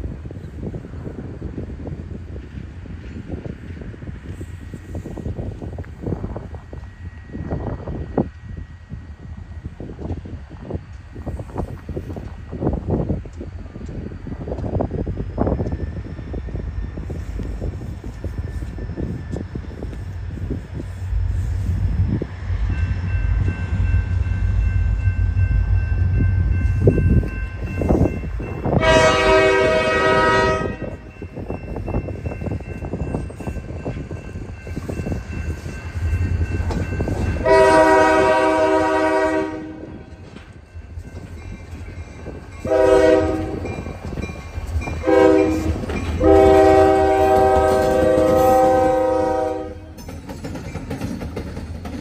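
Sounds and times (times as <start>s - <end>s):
low rumble of train: 0.0s - 52.0s
diesel locomotive air horn: 28.6s - 31.1s, 37.4s - 40.1s, 42.6s - 43.8s, 45.0s - 50.0s.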